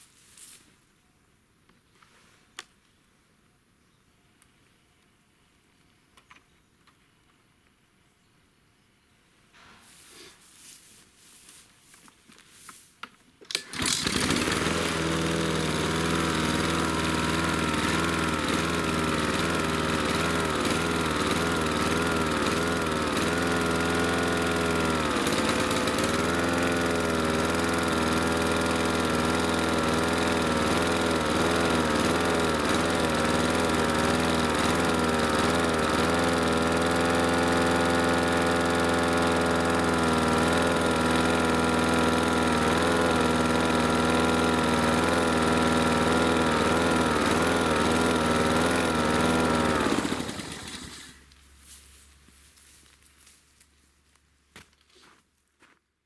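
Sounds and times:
lawn mower engine surging: 13.4s - 51.9s.

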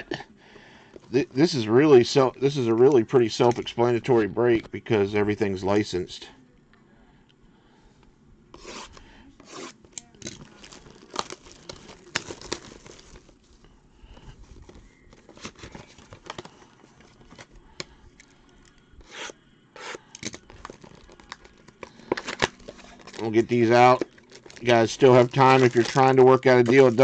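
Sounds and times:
plastic wrap rustling and tearing: 9.5s - 13.7s, 14.4s - 17.6s, 20.2s - 27.0s.

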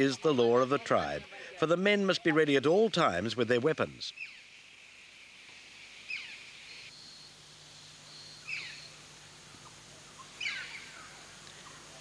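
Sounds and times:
steady high hiss: 0.0s - 12.0s
bird falling call: 9.6s - 11.9s.

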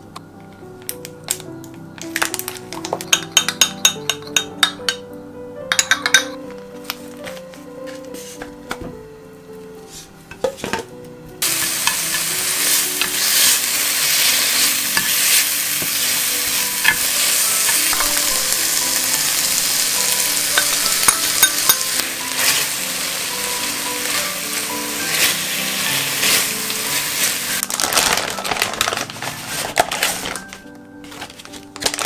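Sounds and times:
beef sizzling in a frying pan: 11.4s - 30.2s.

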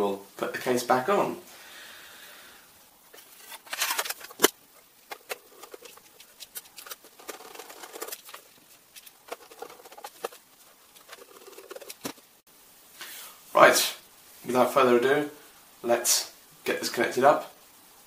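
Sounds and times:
screwdriver rubbing: 5.1s - 12.2s.

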